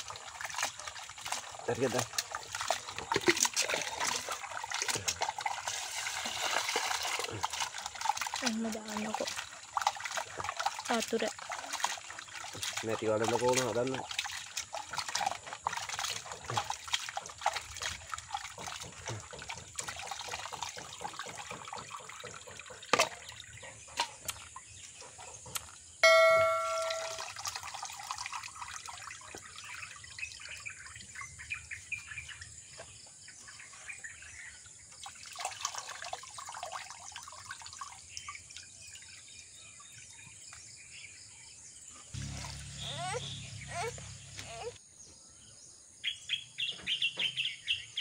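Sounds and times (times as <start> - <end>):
hands squeezing meat in water: 0.0 - 23.4
bell-like notification chime: 26.0 - 27.4.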